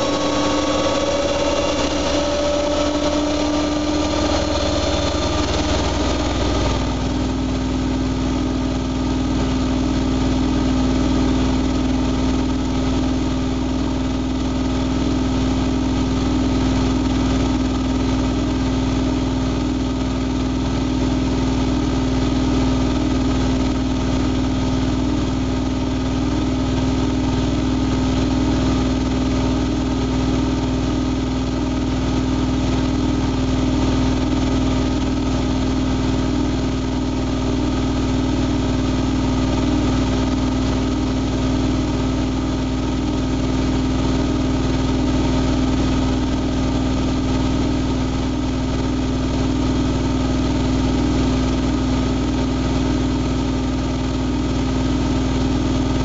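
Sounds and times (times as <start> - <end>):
washing machine motor hum: 0.0 - 56.0.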